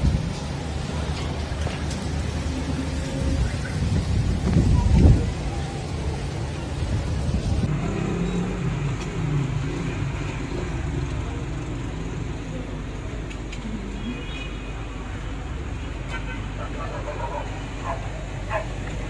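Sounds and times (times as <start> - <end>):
wind buffeting microphone: 0.0 - 7.8
faint road traffic: 0.0 - 19.0.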